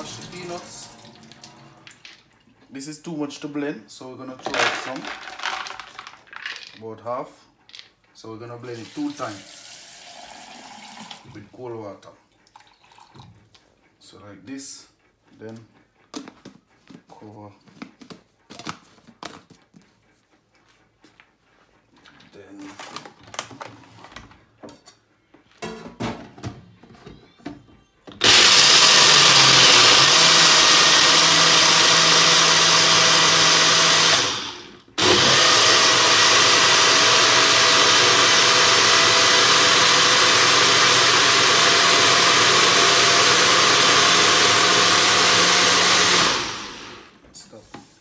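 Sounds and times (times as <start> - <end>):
blender motor grinding: 4.5 - 6.7, 28.2 - 47.2.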